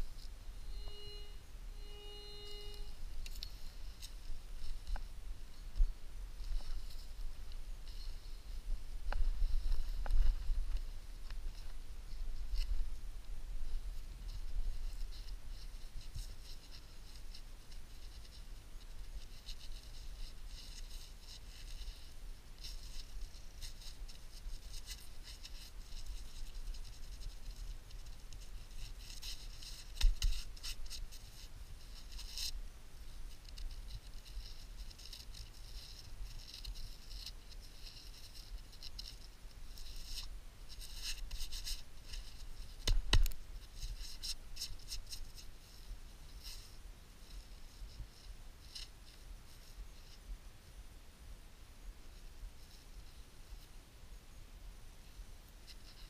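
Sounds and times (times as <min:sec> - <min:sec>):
gloved hands scraping soil: 0:14.0 - 0:46.8.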